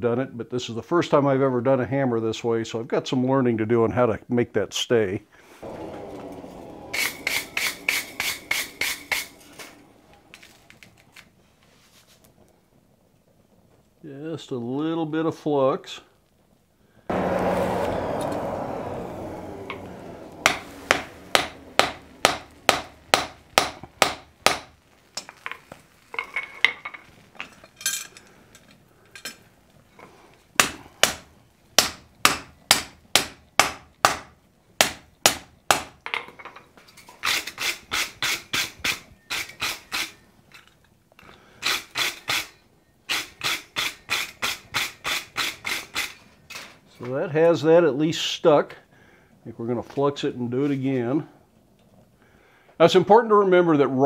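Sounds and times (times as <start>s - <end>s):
rush of noise: 5.6s - 10.5s, 17.1s - 23.7s
hammer striking iron on anvil: 6.2s - 9.4s, 20.4s - 24.7s, 31.8s - 35.9s.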